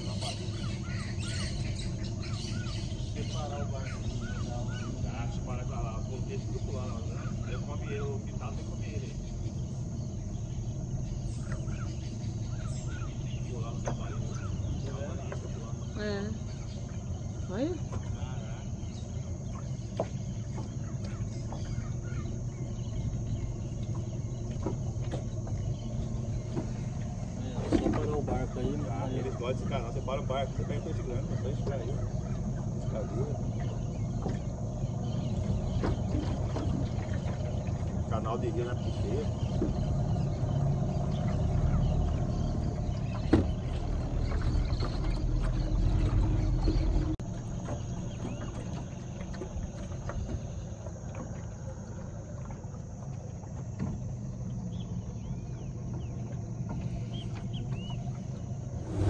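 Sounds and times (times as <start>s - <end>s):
birds chirping: 0.0s - 59.0s
boat motor humming: 0.0s - 59.0s
high insect drone: 0.0s - 59.0s
low steady rumble: 0.0s - 59.0s.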